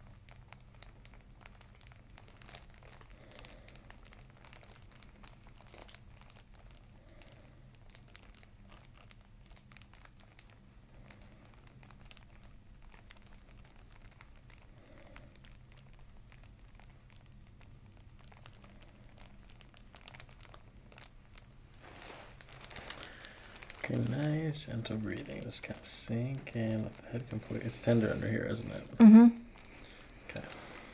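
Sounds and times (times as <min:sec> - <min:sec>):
paper crinkling: 0:00.0 - 0:28.8, 0:29.5 - 0:30.9
low room hum: 0:00.0 - 0:30.9
fingers rustling hair: 0:18.3 - 0:30.9.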